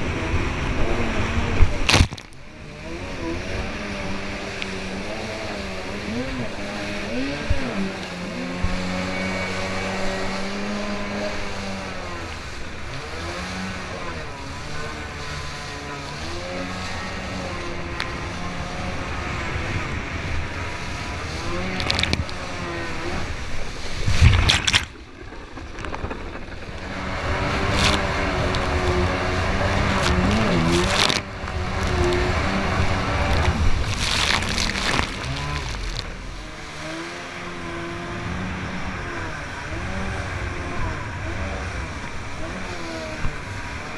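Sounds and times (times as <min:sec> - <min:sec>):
jet ski engine running: 0:00.0 - 0:43.9
rushing water and spray: 0:00.0 - 0:43.9
loud water splash: 0:01.6 - 0:02.3, 0:21.8 - 0:37.5.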